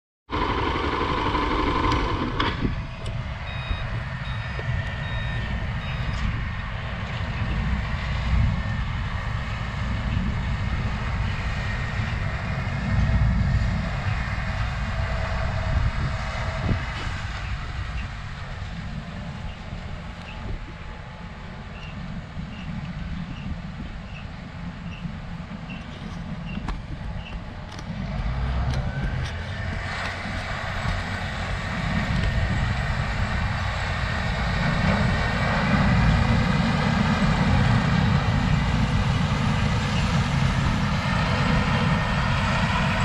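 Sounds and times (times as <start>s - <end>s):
heavy diesel machinery drone: 0.3s - 43.0s
reversing alarm beeping: 0.8s - 6.4s.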